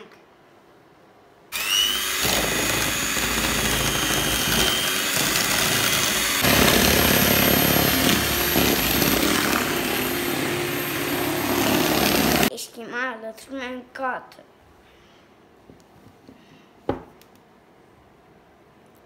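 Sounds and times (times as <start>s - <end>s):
electric hand mixer whirring: 1.5s - 12.5s.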